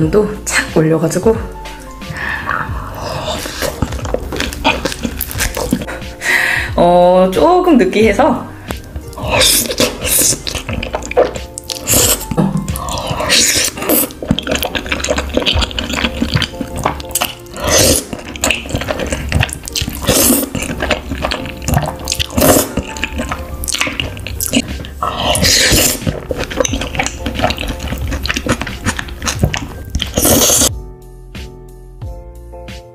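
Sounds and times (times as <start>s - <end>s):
person slurping noodles: 2.2s - 6.2s, 9.1s - 30.8s.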